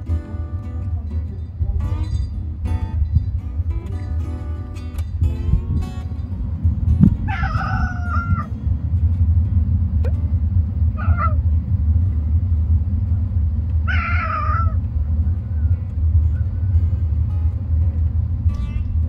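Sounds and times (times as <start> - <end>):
steady low rumble: 0.0 - 19.0
cat meowing: 7.2 - 8.5, 11.0 - 11.4, 13.9 - 14.8.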